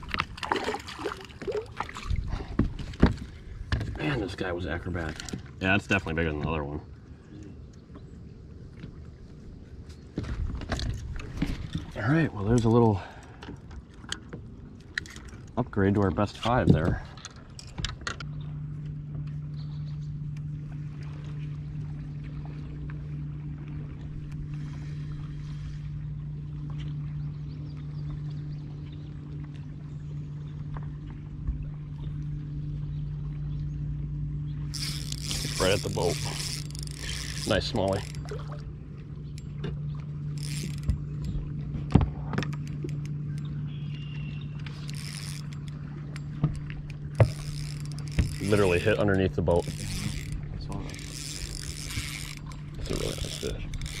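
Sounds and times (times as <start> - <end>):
clicks and knocks of fishing gear: 0.0 - 4.0, 5.0 - 5.6, 9.9 - 20.4, 34.6 - 54.0
electric boat motor humming: 0.0 - 54.0
knocks on a boat: 2.5 - 4.0, 40.8 - 42.5.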